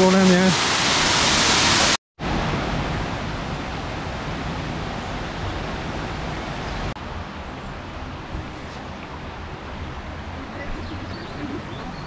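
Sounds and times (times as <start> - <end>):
stream flowing over stones: 0.0 - 4.4
waterfall rushing: 0.0 - 12.0.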